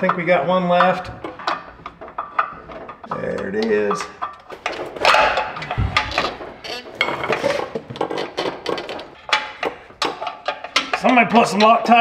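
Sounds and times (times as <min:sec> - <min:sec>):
dull low thump: 0:05.7 - 0:06.5.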